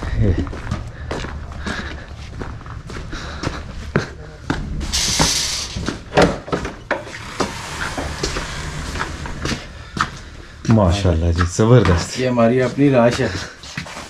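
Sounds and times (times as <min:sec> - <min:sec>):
short hiss: 0:04.9 - 0:05.8.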